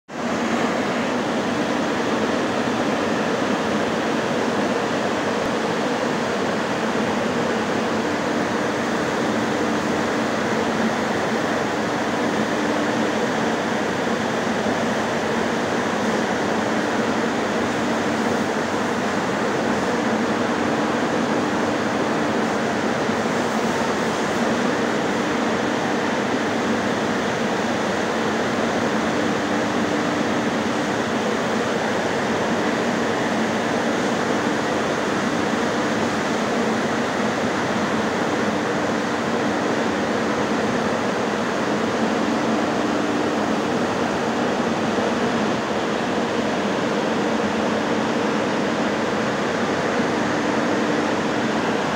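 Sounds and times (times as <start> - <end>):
fans rushing air: 0.1 - 51.9.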